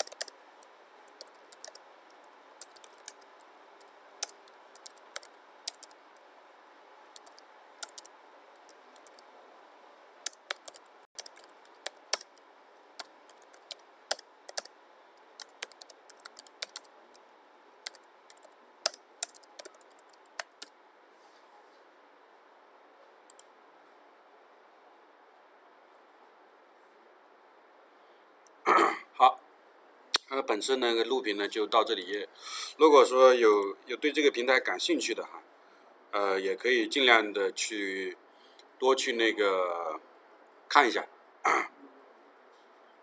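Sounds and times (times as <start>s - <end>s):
lone keyboard clicks: 0.0s - 0.3s, 1.1s - 6.0s, 7.1s - 9.2s, 10.3s - 12.4s, 13.0s - 14.7s, 15.4s - 16.9s, 17.8s - 20.7s
typing on computer keyboard: 0.0s - 0.4s, 1.1s - 6.0s, 7.1s - 9.2s, 10.3s - 12.4s, 13.0s - 14.7s, 15.4s - 16.9s, 17.8s - 20.7s.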